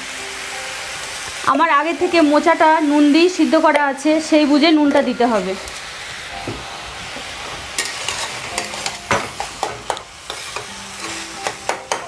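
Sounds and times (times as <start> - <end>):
food sizzling: 0.0 - 12.0
metal spatula scraping a pan: 7.4 - 12.0.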